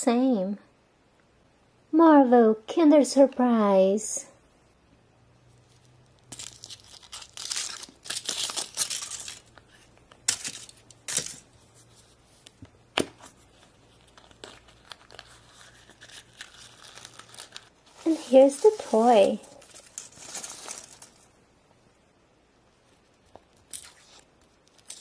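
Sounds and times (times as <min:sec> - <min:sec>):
foil wrapper crinkling: 0:05.7 - 0:11.5, 0:13.6 - 0:21.3, 0:23.5 - 0:25.0.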